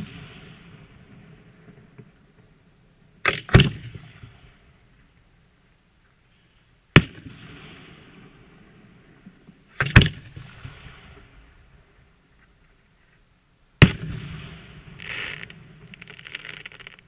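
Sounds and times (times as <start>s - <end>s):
fireworks bangs: 7.0s - 11.9s, 13.8s - 17.0s
fireworks hiss: 10.2s - 11.2s, 15.0s - 17.0s.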